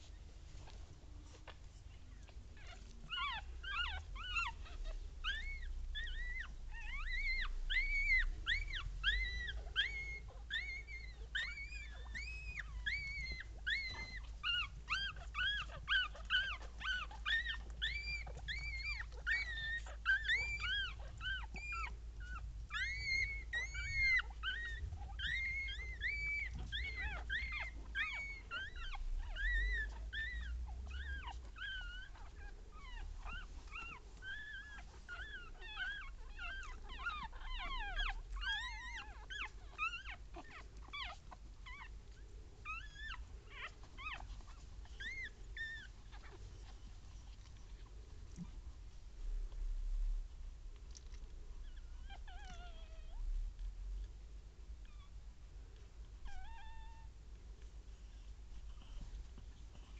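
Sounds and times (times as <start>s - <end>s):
puppies squeaking and crying: 0.0s - 50.1s, 50.9s - 54.1s, 56.0s - 59.9s.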